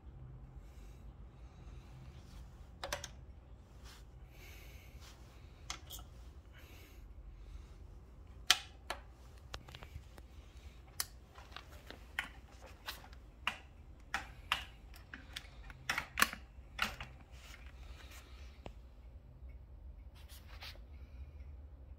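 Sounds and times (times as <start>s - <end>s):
bicycle parts clicking and knocking: 2.8s - 3.2s, 5.6s - 6.1s, 8.4s - 10.2s, 10.8s - 17.7s.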